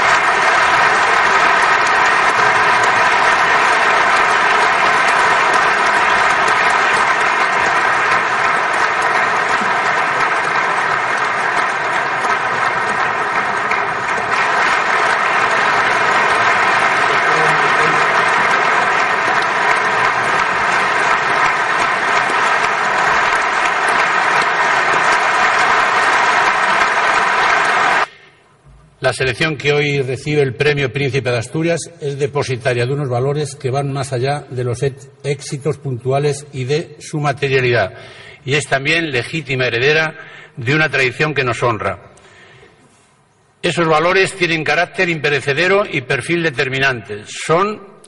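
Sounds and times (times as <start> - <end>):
large audience applauding: 0.0 - 28.3.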